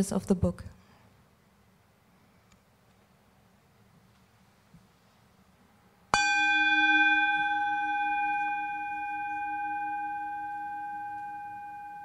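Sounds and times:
singing bowl ringing: 6.1 - 12.0.

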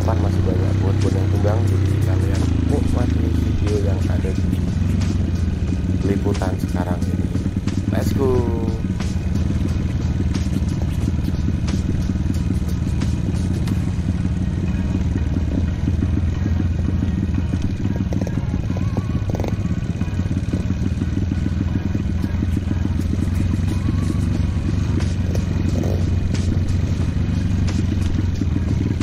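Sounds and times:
motorcycle engine running: 0.0 - 29.0
motorcycle knocks and clatter: 9.0 - 24.2.

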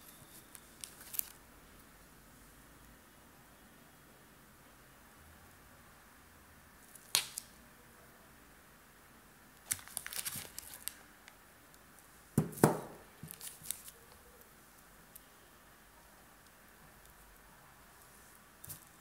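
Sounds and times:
plastic packaging crinkling: 0.0 - 1.4, 9.6 - 11.0, 12.6 - 14.2.

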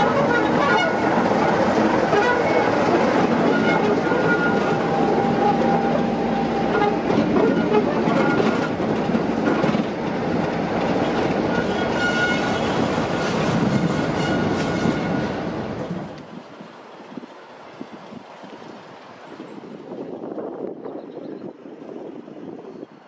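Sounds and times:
diesel locomotive engine running: 0.0 - 16.2.

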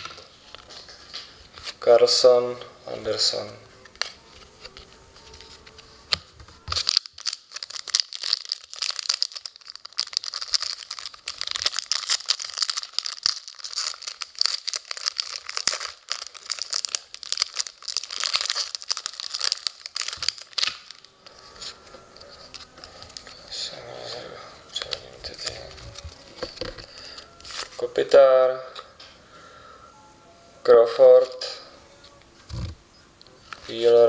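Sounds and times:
foil wrapper crinkling: 6.6 - 23.7, 24.7 - 27.8.

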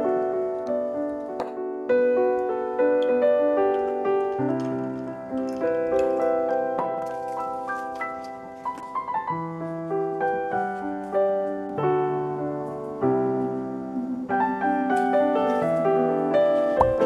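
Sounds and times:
slow piano music: 0.0 - 17.0.

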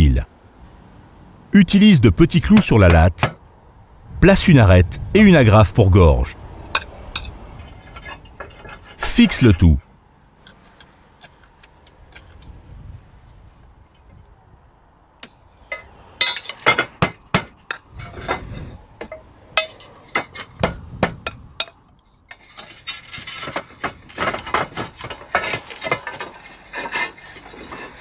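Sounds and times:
roof tiles clinking: 6.8 - 12.5, 15.6 - 20.8, 21.6 - 28.0
tiles scraping: 7.6 - 9.6, 22.3 - 28.0.

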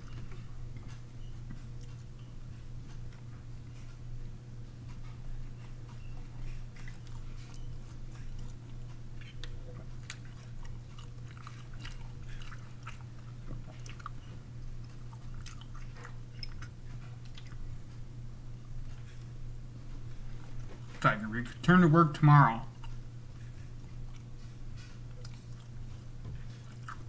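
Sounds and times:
person chewing: 5.9 - 18.0, 22.6 - 27.0.

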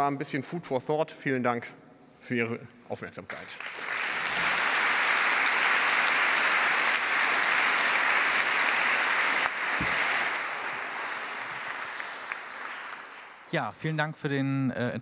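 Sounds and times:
crowd clapping: 3.3 - 13.6.

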